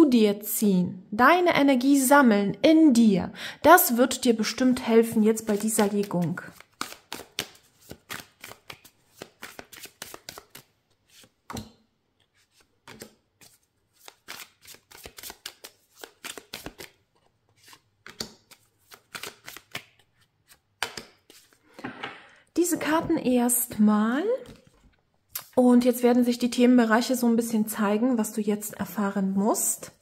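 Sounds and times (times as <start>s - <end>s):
cards shuffling: 5.1s - 11.6s, 12.2s - 21.9s
cards dealt onto a table: 17.5s - 22.2s.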